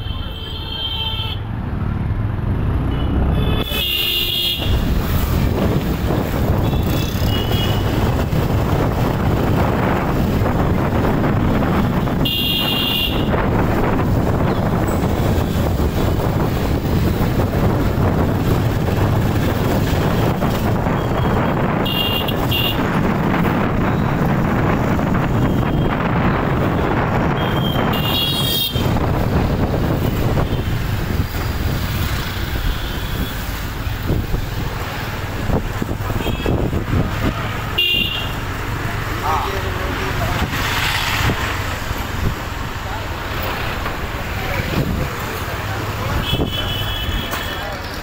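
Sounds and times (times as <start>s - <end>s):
road and wind rumble: 0.0s - 48.0s
vehicle horns tooting: 3.0s - 4.9s, 6.6s - 8.1s, 12.2s - 13.4s, 21.0s - 22.9s, 27.2s - 29.0s, 36.1s - 36.8s, 37.5s - 38.4s, 46.2s - 47.8s.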